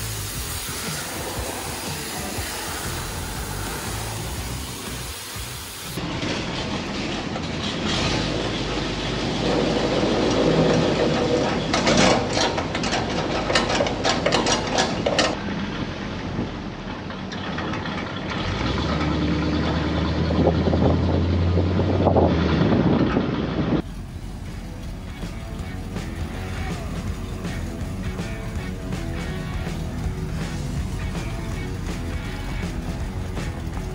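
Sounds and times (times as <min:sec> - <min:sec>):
truck engine running: 0:00.0 - 0:14.8, 0:15.4 - 0:33.9
clicks and rattles: 0:09.5 - 0:15.4.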